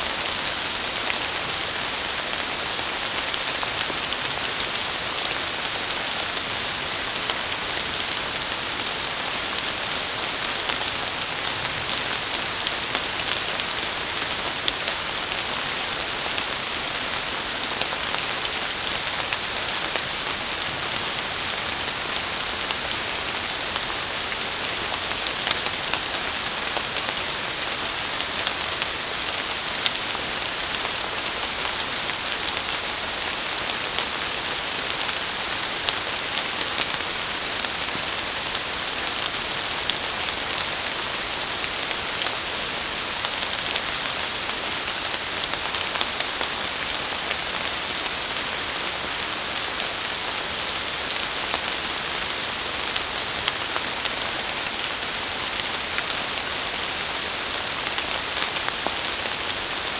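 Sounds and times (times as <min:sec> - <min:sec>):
rain falling on leaves: 0:00.0 - 0:59.9.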